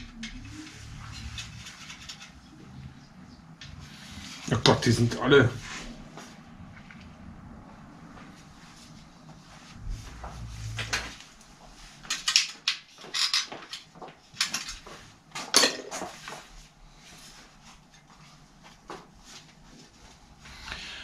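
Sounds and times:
metal tools clinking and rattling: 0:00.1 - 0:02.6, 0:12.1 - 0:14.8.

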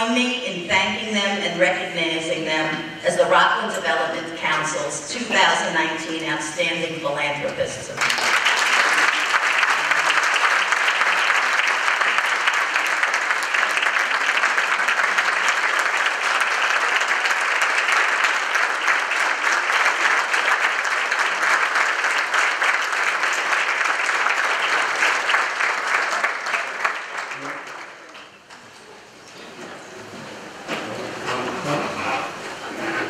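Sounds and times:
audience applauding: 0:08.0 - 0:28.4.

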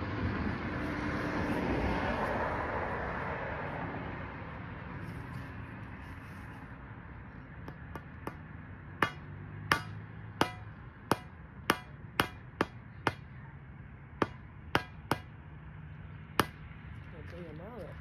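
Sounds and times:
mallet hammering on steel bar: 0:07.7 - 0:13.3, 0:14.2 - 0:15.4, 0:16.4 - 0:16.6.

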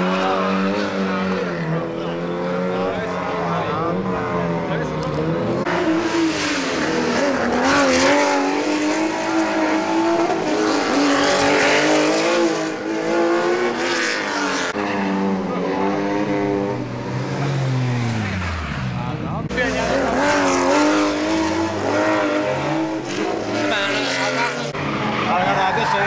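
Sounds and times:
rally car engines revving: 0:00.0 - 0:26.0
tyre squeal: 0:25.1 - 0:26.0.

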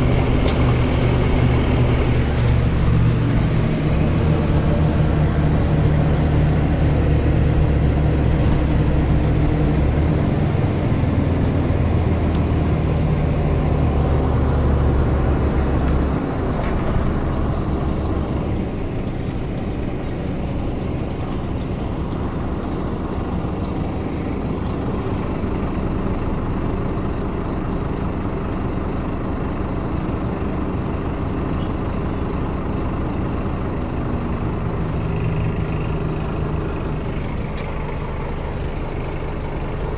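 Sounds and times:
bus engine drone: 0:00.0 - 0:39.9
road and body noise: 0:00.0 - 0:39.9.

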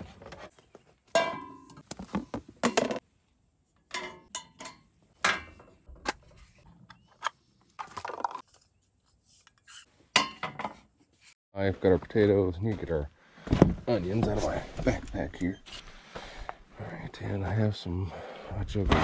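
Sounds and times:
knocks and clinks of cookware: 0:03.9 - 0:05.8.

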